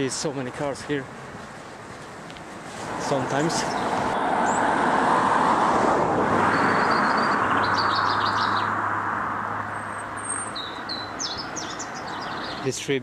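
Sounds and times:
car driving past: 2.9s - 12.6s
small bird twittering: 6.5s - 8.7s, 9.8s - 12.7s.

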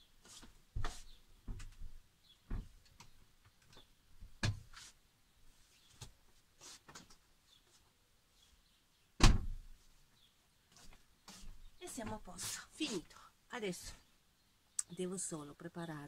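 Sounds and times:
knocks and bumps of handling things: 0.7s - 4.7s
loud bang of door shutting: 9.2s - 9.6s.

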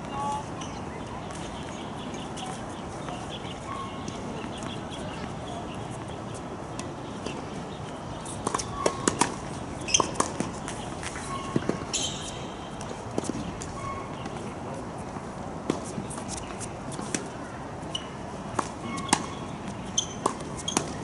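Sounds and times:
tennis balls struck by rackets: 8.3s - 14.5s, 18.5s - 21.0s
balls bouncing on hard court: 8.4s - 14.4s, 17.9s - 21.0s.

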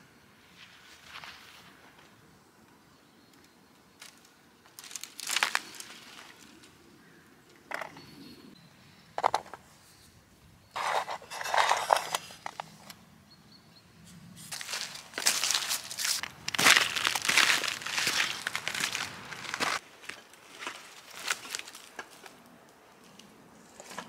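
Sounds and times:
twigs rustling and crackling: 3.3s - 7.8s, 14.4s - 24.0s
footsteps crunching on leaves: 4.8s - 6.4s, 14.4s - 22.0s.

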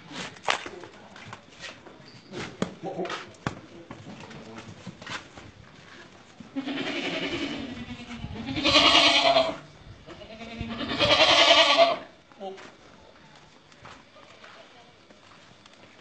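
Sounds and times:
goats bleating: 6.5s - 12.1s.

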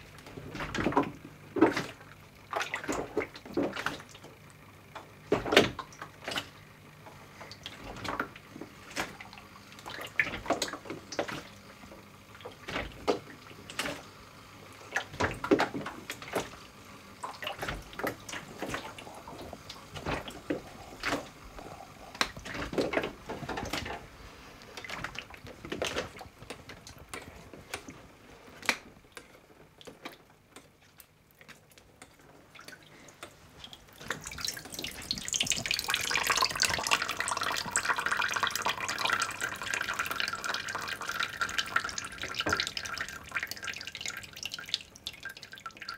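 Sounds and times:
liquid sloshing in a tray: 0.4s - 4.3s, 17.2s - 45.9s.

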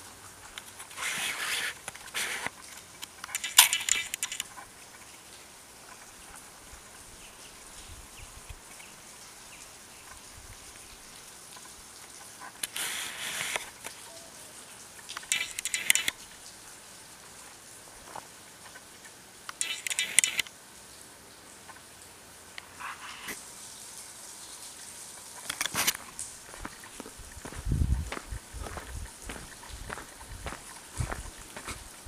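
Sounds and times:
crackling rustling noise: 0.0s - 9.3s, 10.0s - 16.6s, 17.2s - 20.5s, 22.5s - 23.4s, 25.2s - 32.0s
faint background hiss: 0.0s - 32.0s.

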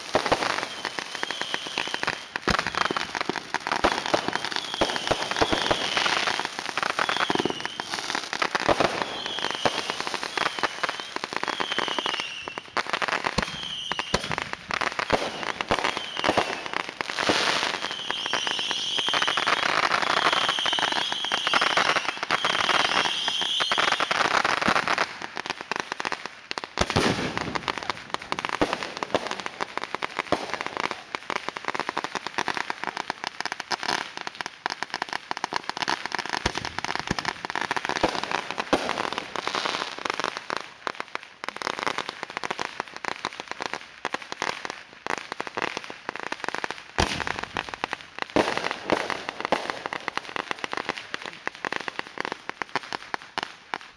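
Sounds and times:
firecrackers popping rapidly: 0.0s - 53.9s
high firework whistle: 0.4s - 3.2s, 4.2s - 8.0s, 8.8s - 14.4s, 15.2s - 24.2s
loud firework bangs: 26.8s - 29.6s, 47.0s - 47.7s.

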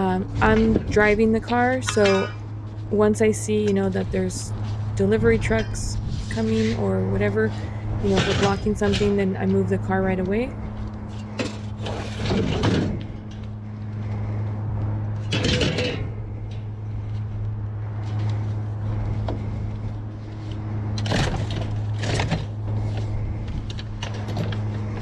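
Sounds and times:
metal fan guard clanking: 0.0s - 13.6s, 15.1s - 17.2s, 20.9s - 25.0s
steady low hum: 0.0s - 25.0s.

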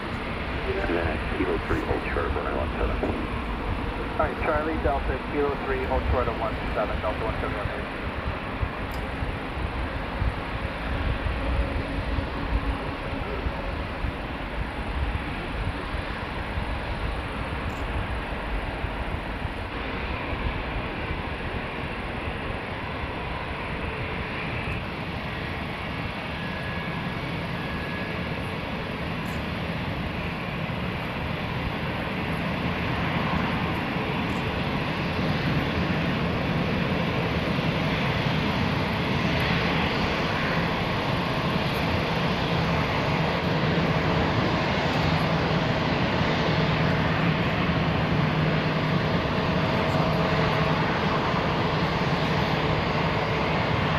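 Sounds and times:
jet engines roaring: 0.0s - 53.9s.

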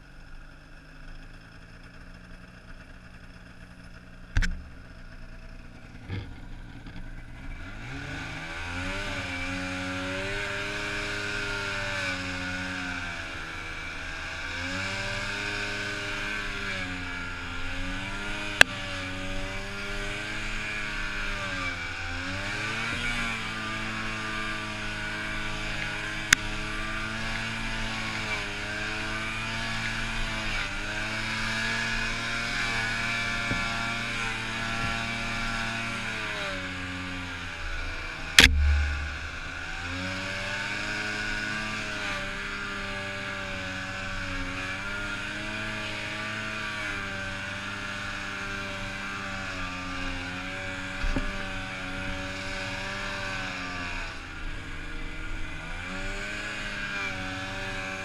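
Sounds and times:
snowmobile engine running hard: 0.0s - 58.0s
sharp click: 38.4s - 39.7s
loud thump: 38.4s - 40.3s.

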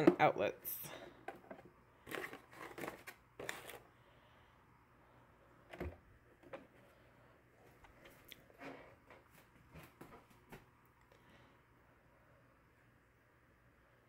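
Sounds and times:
coffee pods rustling and crinkling: 1.4s - 3.9s.

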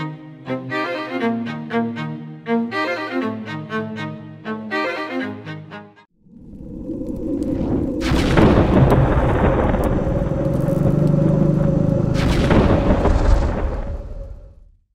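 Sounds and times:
dense low rumble: 6.2s - 14.6s.

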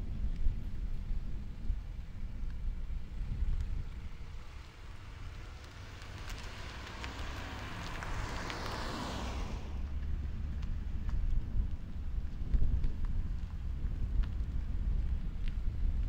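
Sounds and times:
wind rumble on microphone: 0.0s - 16.0s
car driving past: 3.9s - 11.1s.

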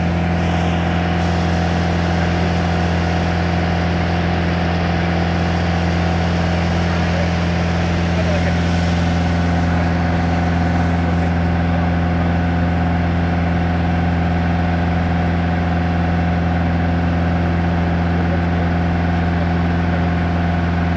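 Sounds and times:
aircraft engine and propeller droning: 0.0s - 20.9s.

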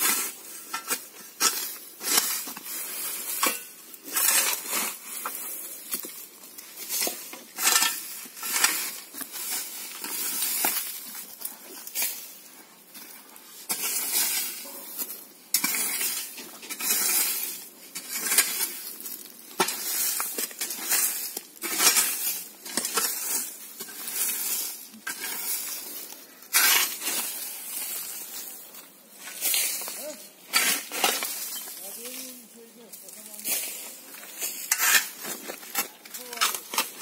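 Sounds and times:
rake scraping through dry grass: 0.0s - 37.0s.

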